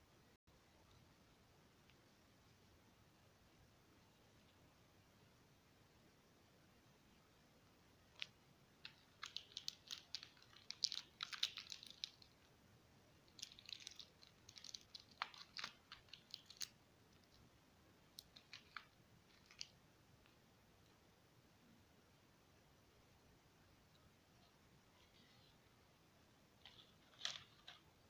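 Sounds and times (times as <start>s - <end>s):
plastic wrappers crackling: 8.2s - 12.4s, 13.3s - 16.8s, 18.2s - 19.7s, 26.6s - 27.8s.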